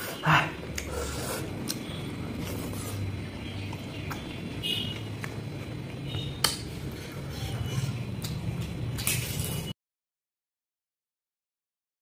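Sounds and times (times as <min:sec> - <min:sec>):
man chewing food: 0:00.0 - 0:09.5.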